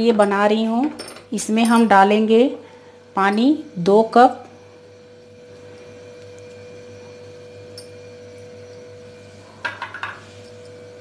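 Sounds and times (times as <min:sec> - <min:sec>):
kitchenware clinking: 0:09.6 - 0:10.7.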